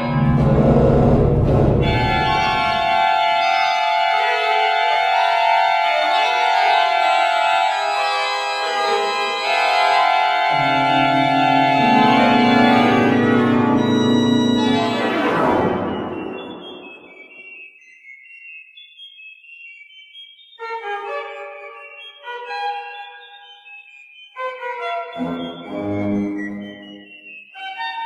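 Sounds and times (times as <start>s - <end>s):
pipe organ chords: 0.0s - 17.7s, 20.6s - 27.7s.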